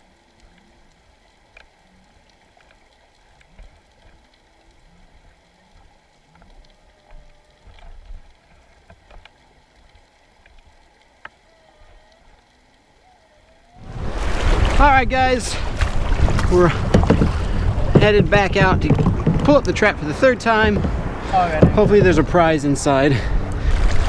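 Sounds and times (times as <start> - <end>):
underwater clicks and crackles: 0.0 - 24.0
low muffled rumble: 13.2 - 24.0.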